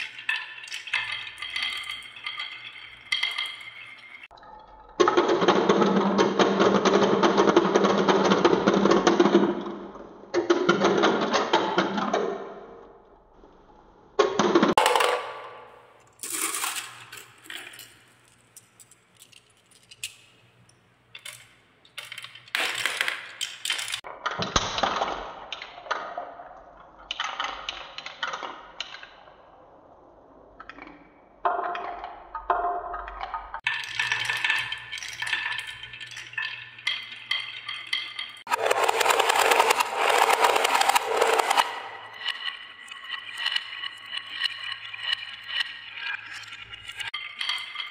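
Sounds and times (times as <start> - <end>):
glass marbles clattering on wood: 0.0 - 4.4, 14.8 - 24.1, 33.6 - 47.9.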